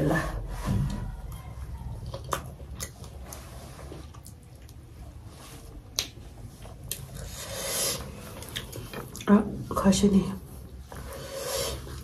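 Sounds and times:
wet eating sounds: 0.6 - 9.8.

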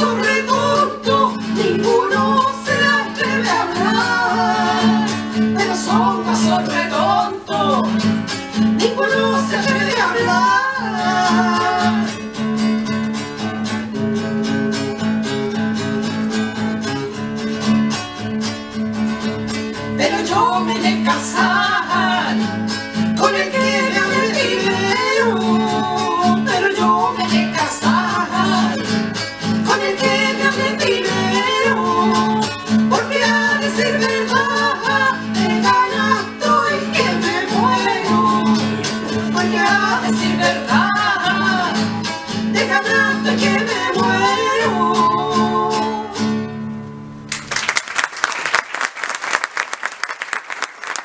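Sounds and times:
women singing folk song: 0.0 - 12.4, 19.9 - 46.6
strummed acoustic guitars: 0.0 - 47.5
audience applause: 47.3 - 51.0.

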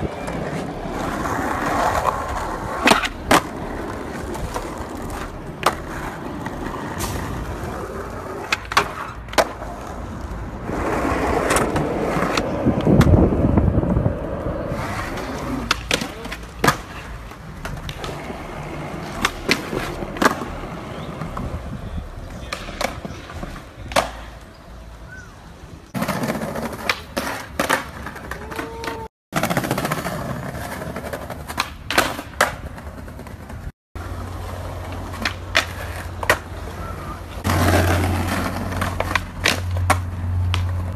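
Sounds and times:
skateboard wheels rolling on concrete: 0.0 - 40.9
skateboard tail popping clacks: 19.0 - 20.6, 22.3 - 24.4, 37.4 - 40.9.

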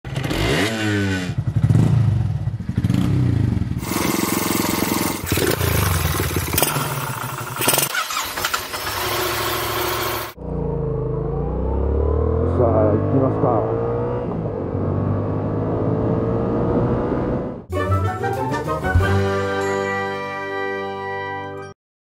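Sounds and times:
motorcycle engines revving: 0.1 - 17.7.

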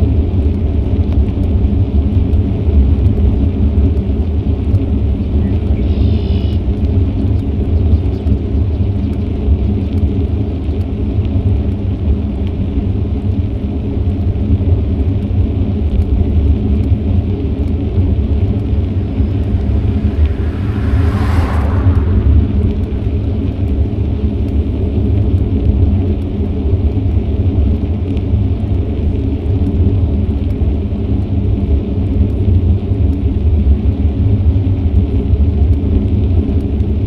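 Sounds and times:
wind rumble on microphone: 14.2 - 37.0
vehicle rushing past: 17.8 - 24.7.

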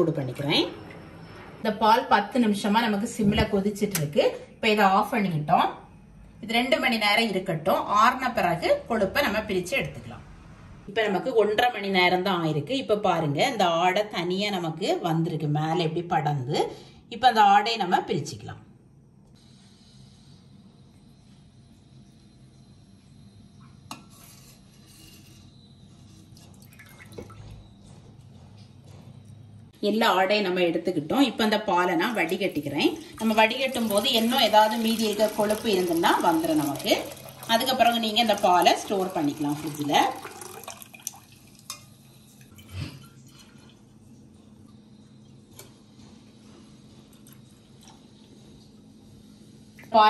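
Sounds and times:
milk trickling into a bottle: 26.2 - 27.5, 33.0 - 41.7
liquid drips and splashes: 26.3 - 27.6, 33.0 - 43.8.

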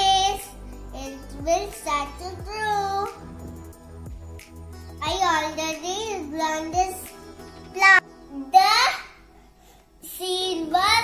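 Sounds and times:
child's voice: 0.0 - 3.4, 5.0 - 9.3, 10.0 - 11.0
background music: 0.0 - 11.0.

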